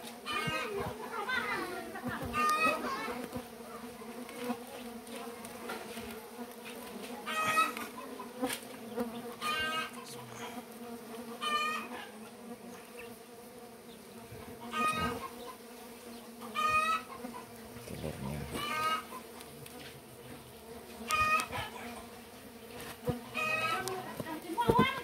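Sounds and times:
bees buzzing: 0.0s - 25.0s
chicken clucking: 7.3s - 8.4s, 9.4s - 10.6s, 11.4s - 12.1s, 14.6s - 15.6s, 16.4s - 19.3s, 21.1s - 22.2s, 23.2s - 24.0s.

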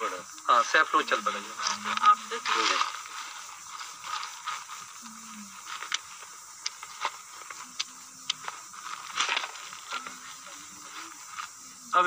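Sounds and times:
faint voices murmuring: 0.0s - 12.0s
branches rustling: 0.7s - 12.0s.

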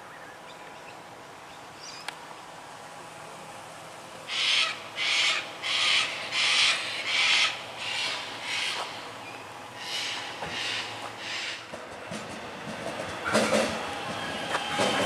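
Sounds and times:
bird giving harsh calls: 4.3s - 11.7s.

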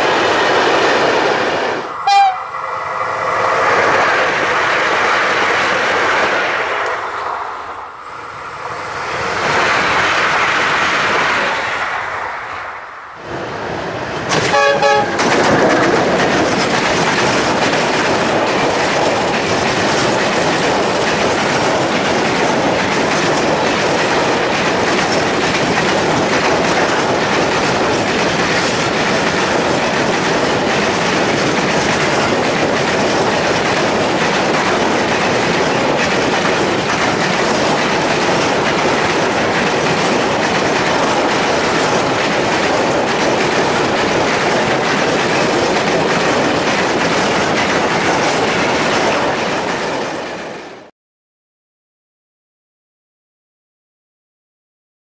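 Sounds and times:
freight train passing: 0.0s - 50.9s
train horn note: 2.0s - 2.6s, 14.4s - 15.2s
wheels clattering over rail joints: 14.2s - 50.5s.

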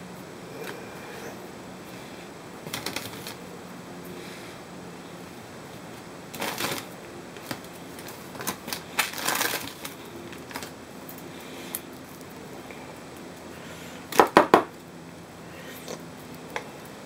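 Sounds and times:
foil-wrapped chocolates rustling: 6.3s - 10.8s
cellophane bag crinkling: 6.4s - 6.9s, 7.5s - 10.8s.

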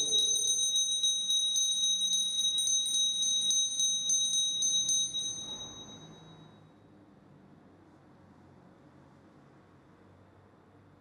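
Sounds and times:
altar bells ringing: 0.0s - 6.5s.

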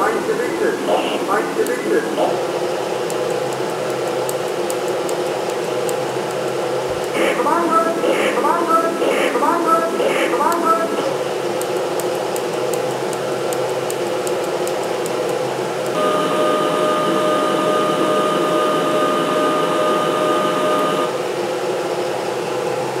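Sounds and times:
steady whine: 0.0s - 23.0s.

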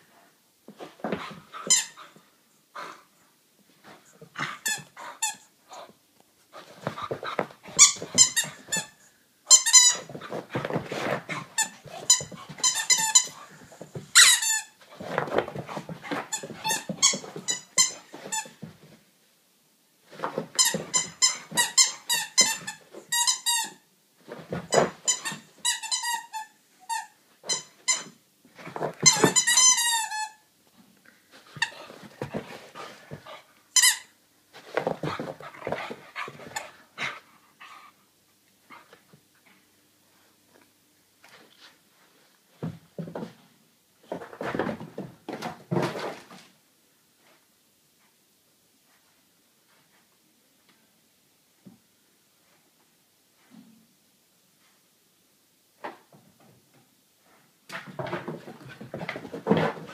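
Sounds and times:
squeaky toy squeaking: 9.5s - 10.1s, 14.2s - 14.7s.

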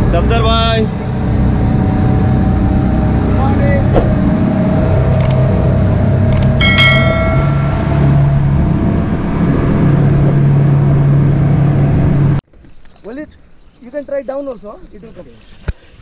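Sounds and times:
boat engine drone: 0.0s - 12.4s
wind: 0.0s - 16.0s
ringing bell chime: 6.6s - 8.6s.

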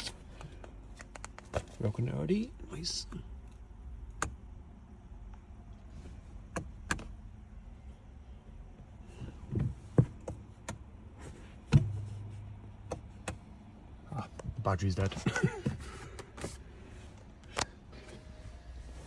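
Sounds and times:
low steady hum: 0.0s - 19.0s
thumps from dashboard controls: 8.8s - 13.5s.

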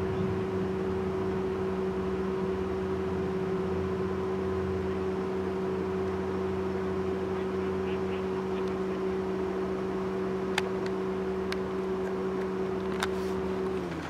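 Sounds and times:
low rumble: 0.0s - 4.9s
steady machine hum: 0.0s - 14.0s.

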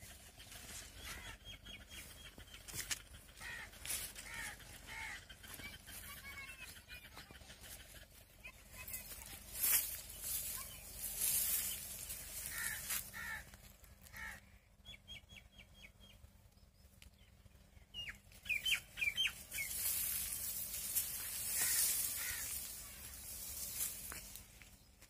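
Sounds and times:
crow cawing: 1.0s - 1.4s, 3.3s - 5.7s, 12.1s - 14.6s, 20.9s - 23.9s
small bird chirping: 14.8s - 25.0s
hissing rustle: 19.4s - 24.6s.

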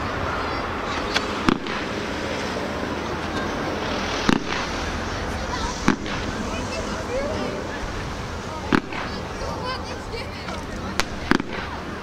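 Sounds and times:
fireworks bursting in bangs: 1.2s - 2.3s, 3.9s - 6.8s, 8.7s - 9.5s, 11.0s - 12.0s.

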